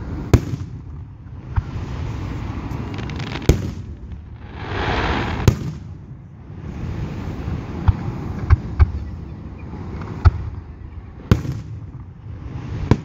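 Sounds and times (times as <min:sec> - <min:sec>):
firework hiss: 0:01.6 - 0:05.9
firework shells booming: 0:02.5 - 0:06.1.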